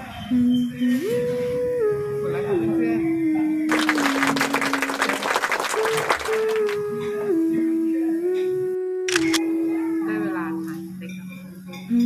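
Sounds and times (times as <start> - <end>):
clapping applause: 3.7 - 6.8
slow held-note music: 6.6 - 12.0.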